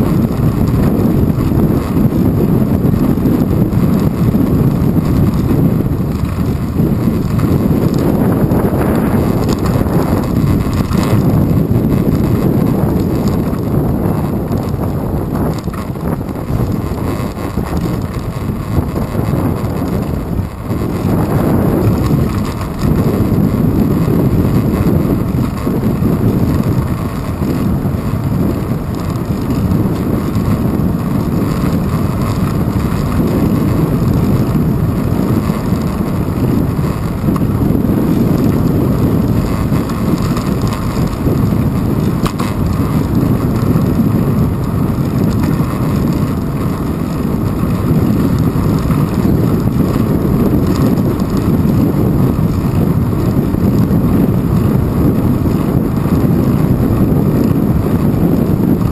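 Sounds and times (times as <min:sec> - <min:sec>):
wind buffeting microphone: 0:00.0 - 0:58.9.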